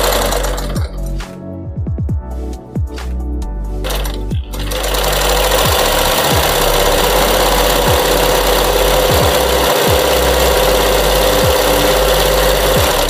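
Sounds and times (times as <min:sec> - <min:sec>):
sewing machine winding bobbin: 0:03.9 - 0:13.0.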